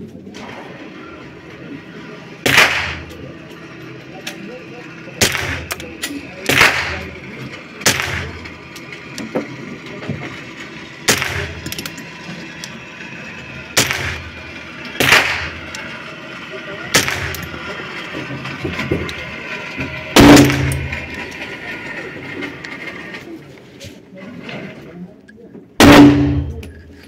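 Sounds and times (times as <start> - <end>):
gunshots echoing: 2.4 - 3.2, 5.2 - 7.2, 7.8 - 8.6, 11.1 - 11.8, 13.8 - 14.3, 15.0 - 15.7, 16.9 - 17.5, 20.2 - 21.0, 25.8 - 26.6.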